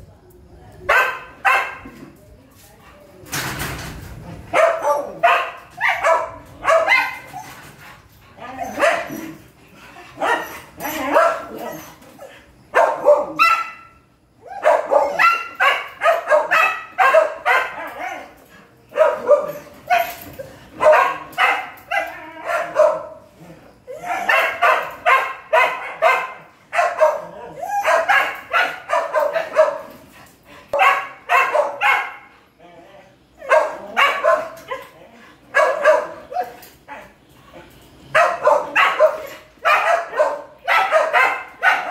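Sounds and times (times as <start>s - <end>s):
dogs barking: 0.9s - 1.8s, 4.5s - 7.4s, 8.6s - 9.4s, 10.1s - 11.9s, 12.7s - 23.3s, 24.0s - 30.0s, 30.7s - 32.3s, 33.4s - 37.1s, 38.1s - 41.9s.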